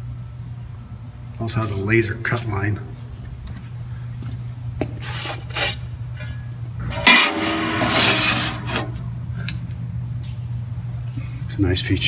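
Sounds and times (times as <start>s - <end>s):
low machine hum: 0.0s - 12.0s
sheet metal scraping on steel: 6.8s - 9.0s
sharp metal clank: 6.9s - 9.0s.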